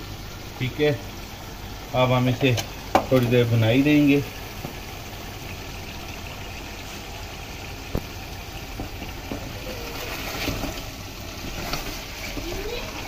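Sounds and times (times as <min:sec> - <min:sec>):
chicken sizzling in a pot: 0:00.0 - 0:13.0
wooden spoon knocking on pot: 0:02.9 - 0:03.3, 0:08.7 - 0:09.6.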